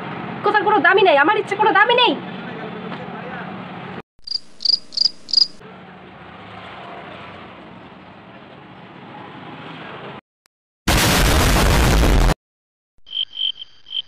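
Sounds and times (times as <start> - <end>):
cricket chirps sound effect: 4.2 - 5.6, 13.0 - 14.0.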